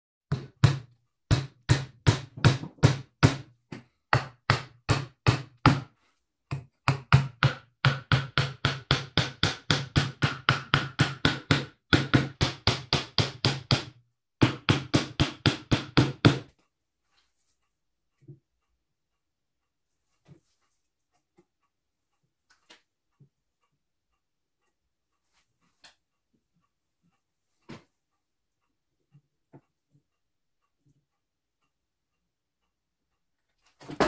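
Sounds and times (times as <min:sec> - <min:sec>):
hammer striking nails into wood: 0:00.3 - 0:05.9, 0:06.5 - 0:16.5.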